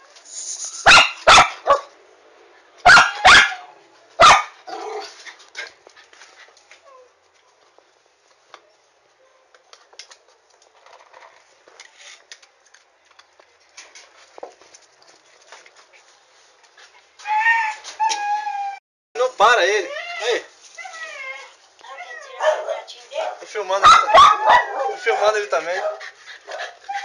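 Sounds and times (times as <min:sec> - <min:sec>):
dog barking sharply: 0:00.8 - 0:01.9, 0:02.8 - 0:04.6, 0:22.4 - 0:26.0.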